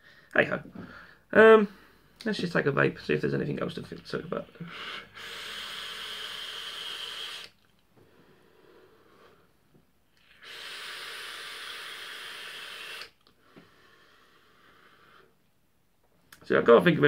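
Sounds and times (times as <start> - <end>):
vape draw hissing: 4.7 - 7.7, 10.2 - 15.3.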